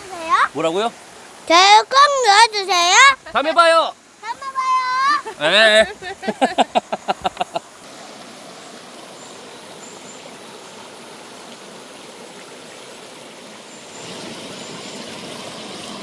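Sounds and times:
stream water rushing: 0.0 - 16.0.

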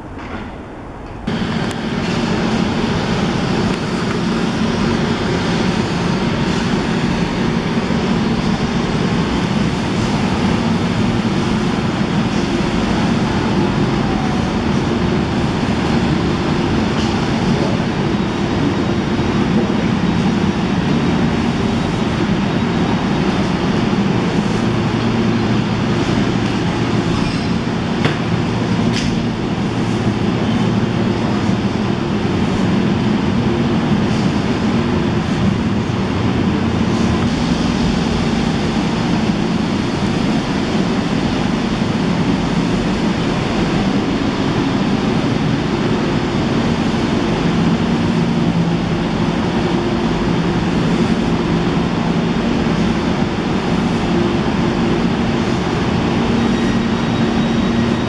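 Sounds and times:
passenger train rumbling: 0.0 - 58.0.

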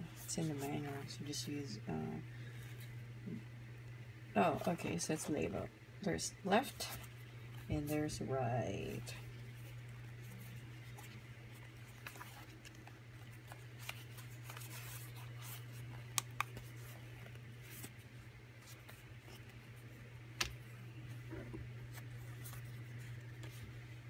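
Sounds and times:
steady low hum: 0.0 - 24.0
headphones handling rubbing: 9.3 - 23.8.

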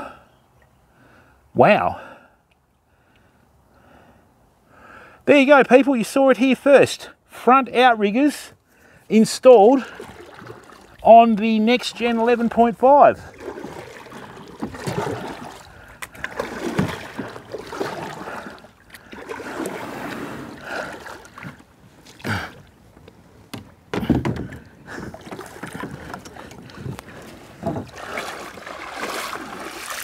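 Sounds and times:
paddle strokes splashing water: 9.8 - 30.0
kayak knocking on landing: 13.4 - 18.5, 23.0 - 30.0.

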